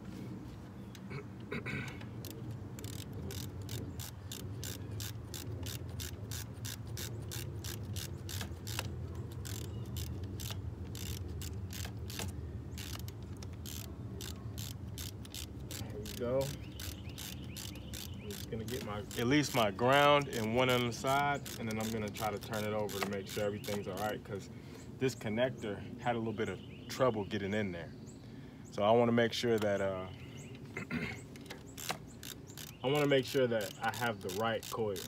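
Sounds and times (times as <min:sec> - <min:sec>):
steady low hum: 0:00.0 - 0:35.0
socket ratchet clicking: 0:01.9 - 0:24.1, 0:31.3 - 0:35.0.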